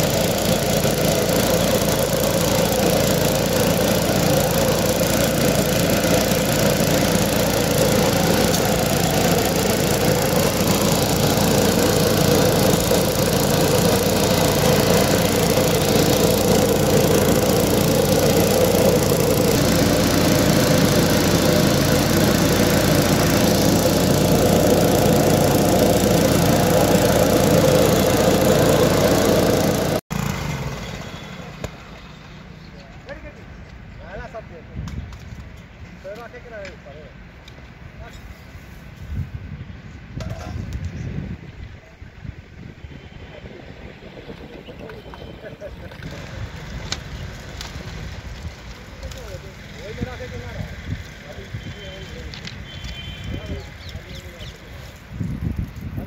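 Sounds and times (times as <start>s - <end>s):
small petrol engine running: 0.0s - 31.7s, 43.4s - 56.0s.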